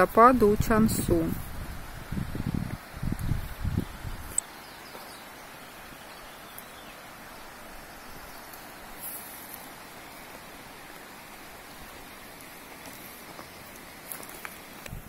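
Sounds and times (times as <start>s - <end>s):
forest ambience hiss: 0.0s - 15.0s.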